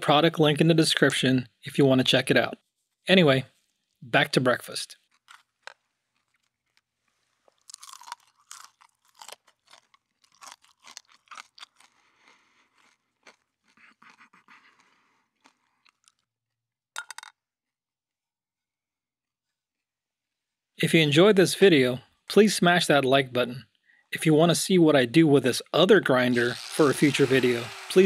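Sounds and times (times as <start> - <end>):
person crunching and chewing: 5.0 - 16.3, 26.3 - 28.0.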